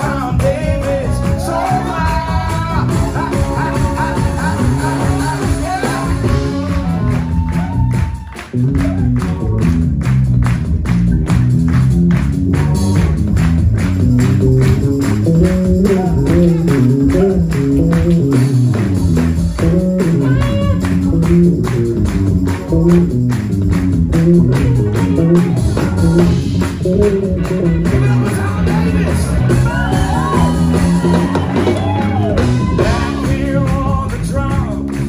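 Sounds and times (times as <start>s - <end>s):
drums: 0.0s - 35.0s
electric bass: 0.0s - 35.0s
keyboards: 8.8s - 35.0s.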